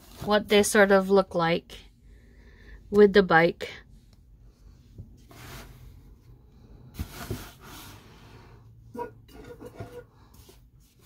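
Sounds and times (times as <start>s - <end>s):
breaths: 2.0s - 2.9s.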